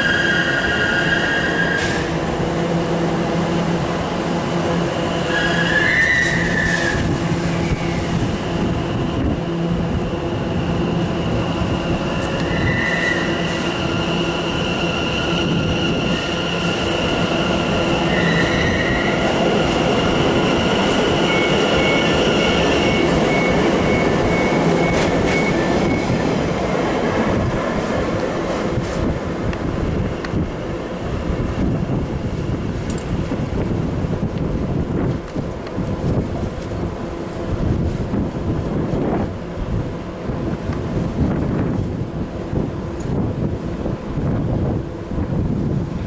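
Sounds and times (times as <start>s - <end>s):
train electric whine: 0.0s - 27.9s
train wheels rumbling: 0.0s - 46.0s
wheel squeals: 5.2s - 7.1s, 11.0s - 26.2s.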